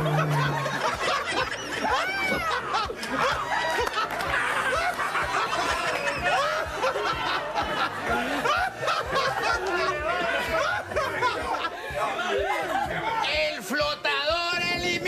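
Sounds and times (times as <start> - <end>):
people laughing: 0.0 - 15.0.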